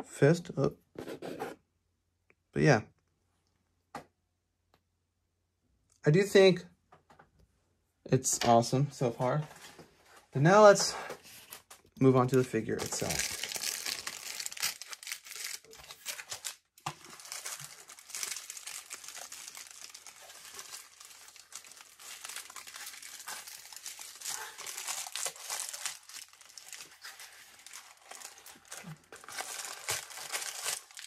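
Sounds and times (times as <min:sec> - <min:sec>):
plastic packaging crinkling: 0:12.7 - 0:31.0.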